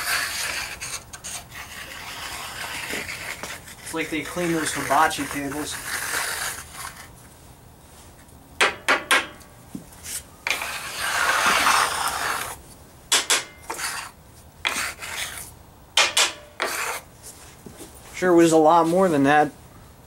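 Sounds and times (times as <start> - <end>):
scraper scraping steel workbench: 0.0 - 7.2, 10.0 - 17.1
metal on metal clacks: 13.1 - 13.8.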